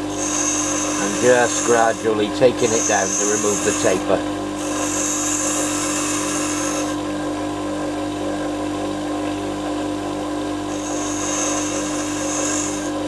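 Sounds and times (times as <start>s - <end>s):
bench grinder motor humming: 0.0s - 7.3s, 10.7s - 13.0s
metal grinding hiss: 0.1s - 7.0s, 10.7s - 13.0s.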